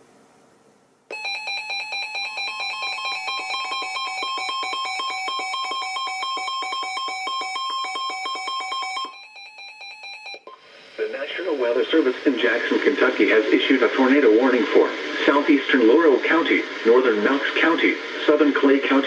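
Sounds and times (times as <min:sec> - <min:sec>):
rapidly pulsing electronic alert beeps: 0:01.1 - 0:10.6.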